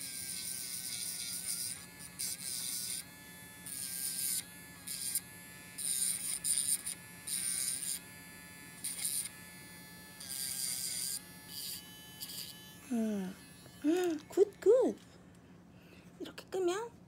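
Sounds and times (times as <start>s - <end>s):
nail grinder whining: 0.0s - 14.4s.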